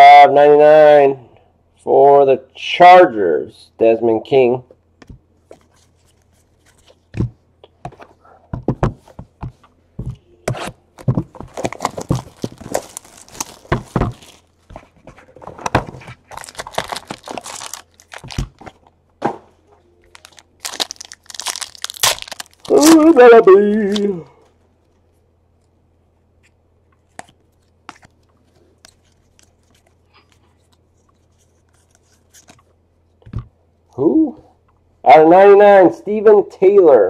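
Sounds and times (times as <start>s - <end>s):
foil wrapper tearing and crinkling: 11.5s - 14.5s, 16.2s - 18.6s, 20.1s - 23.2s.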